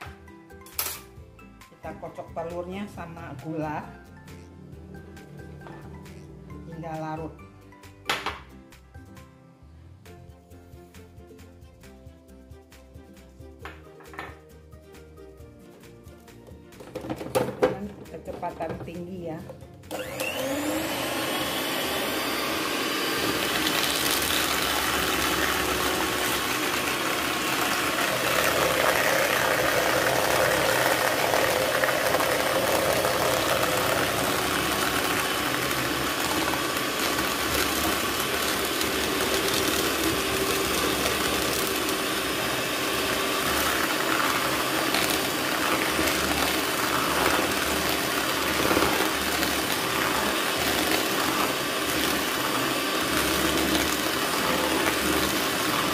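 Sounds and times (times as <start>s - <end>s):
electric hand mixer whisking: 19.9s - 55.9s.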